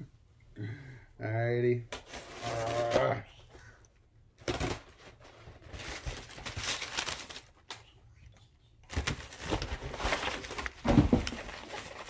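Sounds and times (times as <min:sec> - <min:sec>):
packing material rustling: 0:04.4 - 0:07.8, 0:08.9 - 0:12.0.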